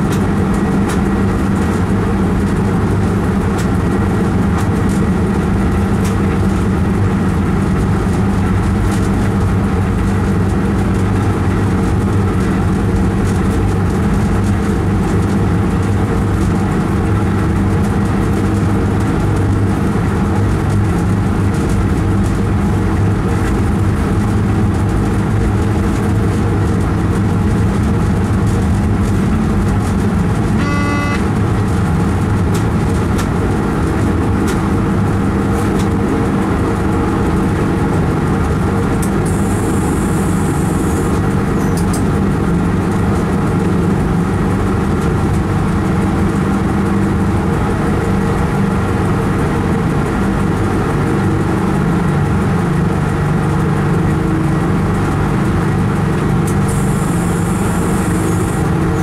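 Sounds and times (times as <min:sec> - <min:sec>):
traction equipment low hum: 0:00.0 - 0:59.0
train running through tunnel: 0:00.0 - 0:59.0
short beeping tone: 0:30.6 - 0:31.3.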